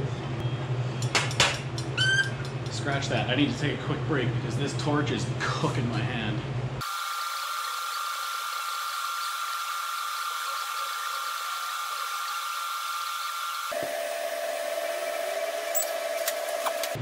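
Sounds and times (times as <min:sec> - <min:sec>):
welding arc hiss and whine: 0:06.8 - 0:17.0.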